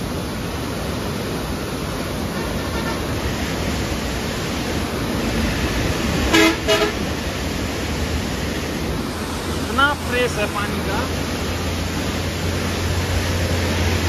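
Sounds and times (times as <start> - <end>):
river water rushing roar: 0.0 - 14.0
vehicle horn toots: 6.3 - 7.0.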